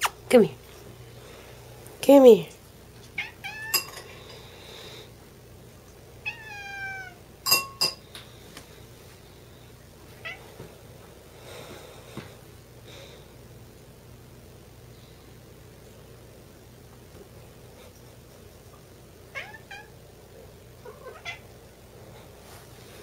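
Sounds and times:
cat meowing: 0:03.2 - 0:03.9, 0:06.2 - 0:07.2, 0:19.3 - 0:19.9, 0:20.8 - 0:21.4.

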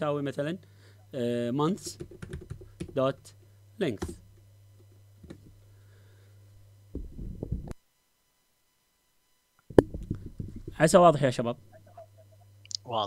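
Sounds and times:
low hum: 0:06.5 - 0:07.8, 0:09.6 - 0:12.5.

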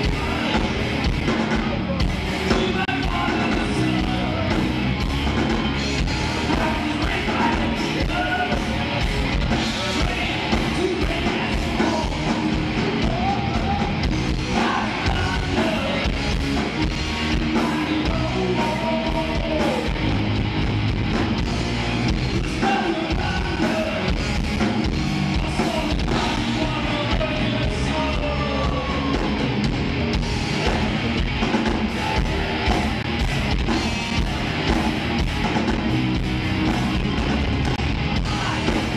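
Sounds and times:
bass guitar: 0:00.0 - 0:38.9
distorted electric guitars: 0:00.0 - 0:38.9
drums: 0:00.0 - 0:38.9
person singing: 0:09.5 - 0:16.2, 0:17.3 - 0:20.1.

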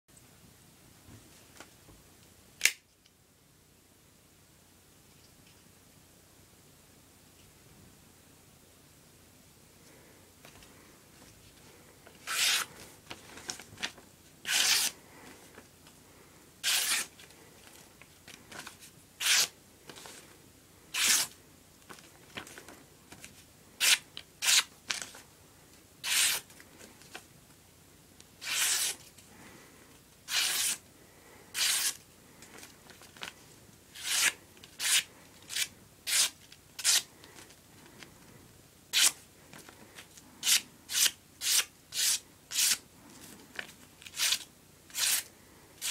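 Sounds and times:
knife slicing paper: 0:12.2 - 0:12.8, 0:14.4 - 0:15.0, 0:16.6 - 0:17.1, 0:19.2 - 0:19.5, 0:21.0 - 0:21.3, 0:23.8 - 0:24.7, 0:26.0 - 0:26.5, 0:28.4 - 0:29.0, 0:30.3 - 0:30.8, 0:31.5 - 0:32.0, 0:33.9 - 0:37.1, 0:40.4 - 0:42.8, 0:44.1 - 0:45.9.

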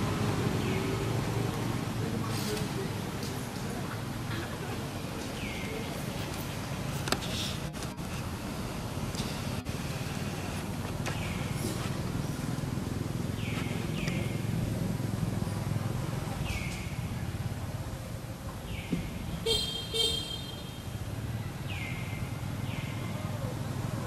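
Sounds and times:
low traffic rumble: 0:00.0 - 0:24.0
short horn toot: 0:19.5 - 0:20.8.

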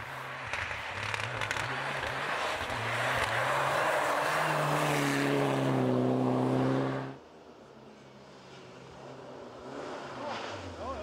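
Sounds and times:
rally car engine revving: 0:00.0 - 0:07.2
road noise: 0:00.0 - 0:11.0.

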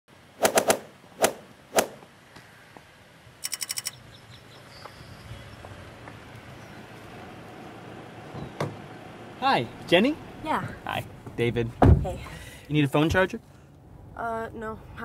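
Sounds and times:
faint outdoor background: 0:00.1 - 0:15.0
rapid electronic beeps: 0:03.4 - 0:04.0.

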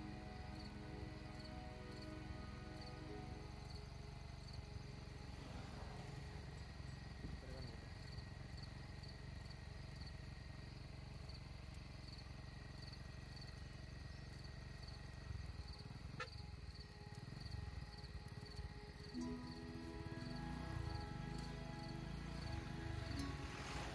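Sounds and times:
faint insect chirping: 0:00.0 - 0:23.9
low steady rumble: 0:00.0 - 0:23.9.

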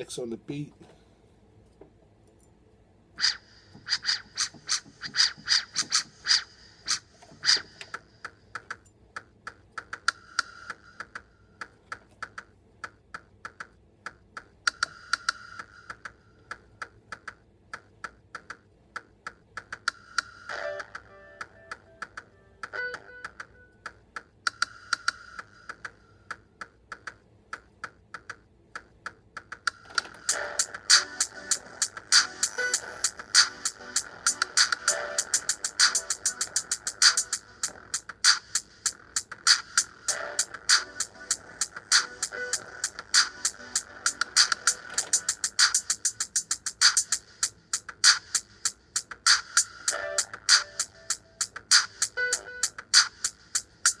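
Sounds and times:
keyboard keys clacking: 0:29.0 - 0:38.3, 0:39.0 - 0:46.7.

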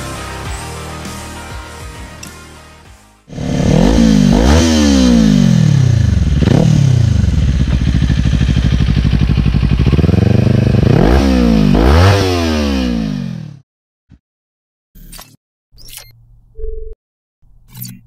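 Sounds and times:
motorcycle engine revving: 0:03.3 - 0:13.6.

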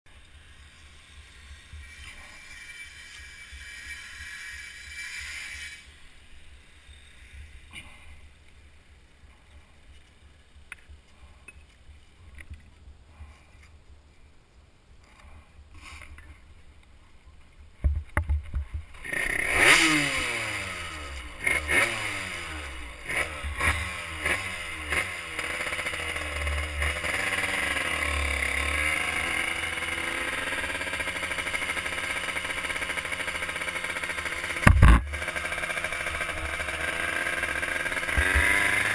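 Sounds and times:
two-stroke engine revving: 0:19.0 - 0:38.9
sharp thumps: 0:34.2 - 0:36.9.

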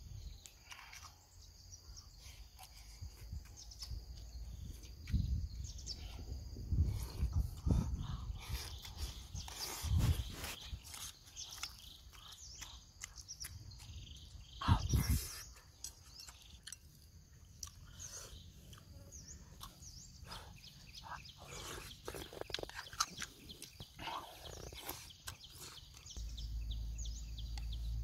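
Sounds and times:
bird chirping calls: 0:00.2 - 0:28.0
person chewing: 0:00.3 - 0:01.3, 0:06.8 - 0:19.0, 0:19.6 - 0:26.3.

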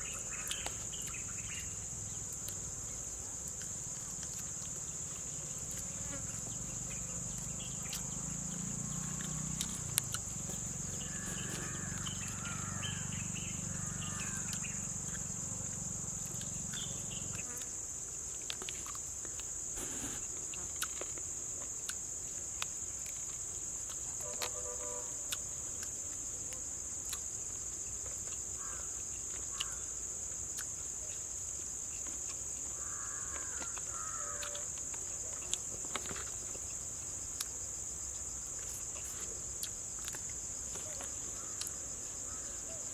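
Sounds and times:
insects chirping: 0:00.0 - 0:42.9
short calls: 0:19.8 - 0:20.2.

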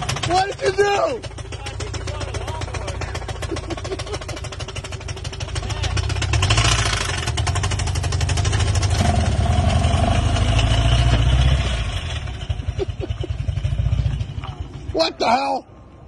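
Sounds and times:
car engine knocking: 0:00.0 - 0:08.9.

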